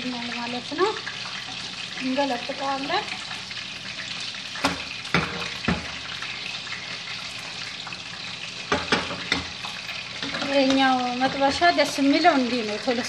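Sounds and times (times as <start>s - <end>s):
omelette sizzling in a frying pan: 0.0s - 13.0s
sharp knocks on a pan: 4.6s - 6.0s, 8.7s - 9.5s.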